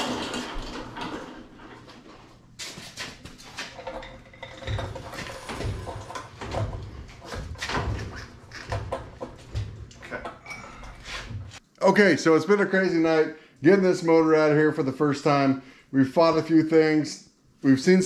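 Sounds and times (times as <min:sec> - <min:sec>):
suspension creaks: 0:00.0 - 0:02.2, 0:03.6 - 0:11.6
metal rattles: 0:03.6 - 0:11.0.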